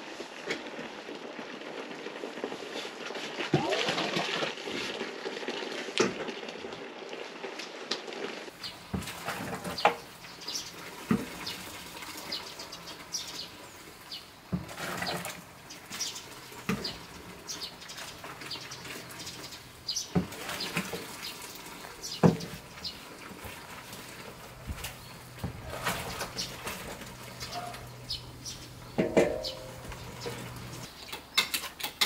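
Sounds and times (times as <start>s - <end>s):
liquid sloshing and pouring: 8.8s - 13.1s, 14.5s - 19.5s, 20.1s - 28.0s.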